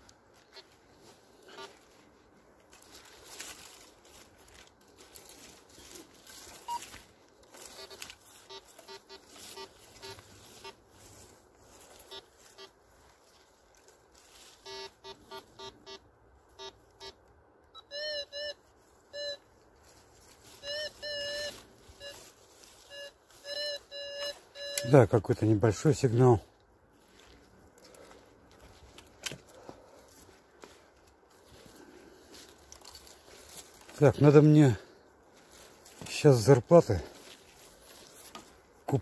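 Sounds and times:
leaves and grass rustling underfoot: 0.0s - 17.2s, 18.1s - 39.0s
metal detector beeps: 1.4s - 1.7s, 5.8s - 10.8s, 12.0s - 12.8s, 14.6s - 16.0s, 16.6s - 19.5s, 20.5s - 26.1s.

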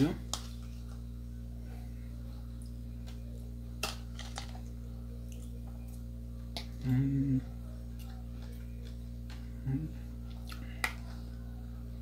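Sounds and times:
low electrical hum: 0.0s - 12.0s
man humming while chewing: 6.8s - 7.6s, 9.6s - 10.8s.

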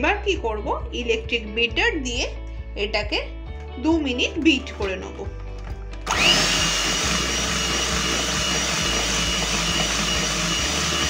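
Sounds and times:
electric hand mixer whine: 6.0s - 11.0s.

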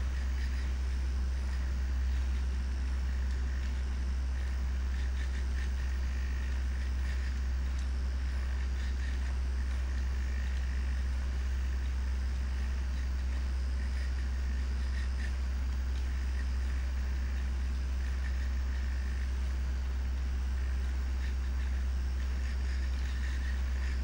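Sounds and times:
steady low hum: 0.0s - 24.0s
light ticks: 1.5s - 11.0s.

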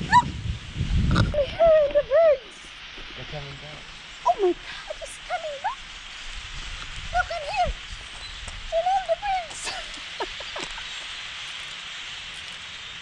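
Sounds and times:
flock of birds chattering: 1.1s - 13.0s
sliding bird calls: 3.8s - 13.0s.

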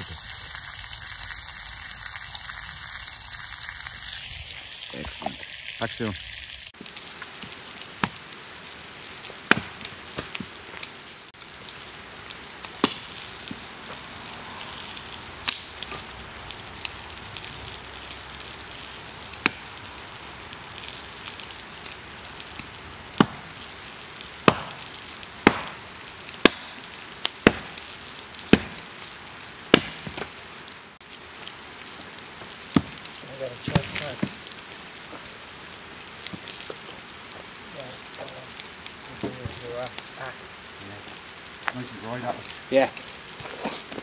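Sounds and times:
sausages sizzling: 0.0s - 44.0s
axe chopping firewood: 9.4s - 10.5s, 12.8s - 13.1s, 23.2s - 23.5s, 24.4s - 26.8s, 27.4s - 27.8s, 28.5s - 28.9s, 29.7s - 30.3s.

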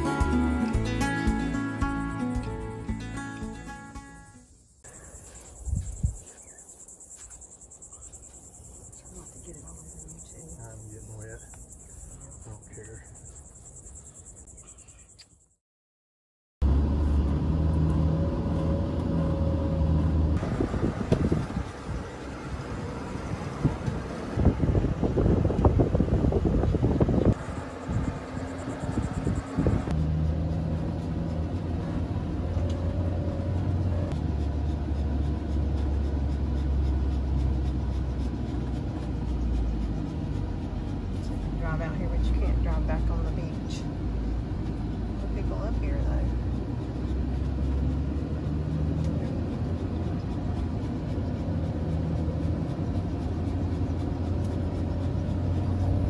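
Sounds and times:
van engine running: 0.0s - 4.3s, 16.6s - 56.0s
crickets chirping: 0.0s - 15.6s, 27.1s - 29.9s.

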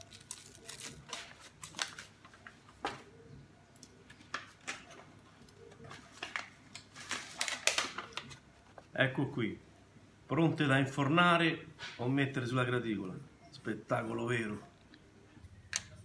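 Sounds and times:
foil tray clicking and crinkling: 6.1s - 8.4s.

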